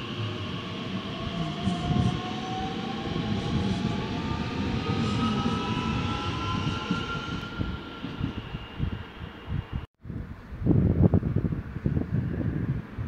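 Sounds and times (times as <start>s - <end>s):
electric train whine rising: 0.0s - 9.8s.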